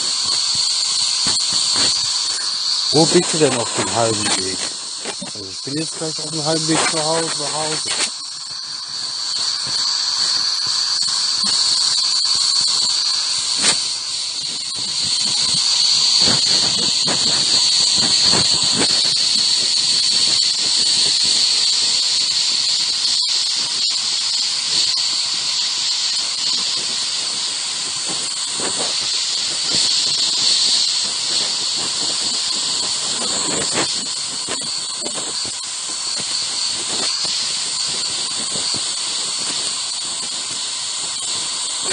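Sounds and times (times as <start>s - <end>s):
high thin tone: 0.0s - 11.8s
radio static hiss: 0.0s - 41.9s.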